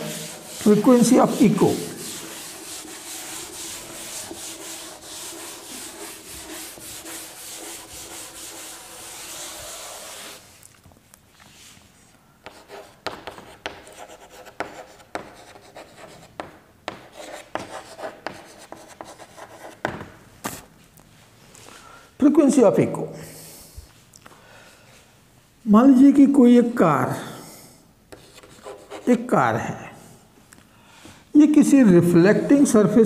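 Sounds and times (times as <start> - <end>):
chalk tapping and scratching: 0.0 - 10.6, 12.4 - 20.7, 28.1 - 29.1
eraser scrubbing blackboard: 0.0 - 10.6, 12.4 - 19.8.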